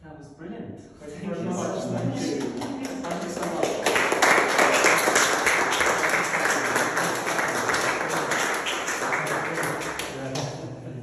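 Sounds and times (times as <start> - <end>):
audience applauding: 2.2 - 10.6.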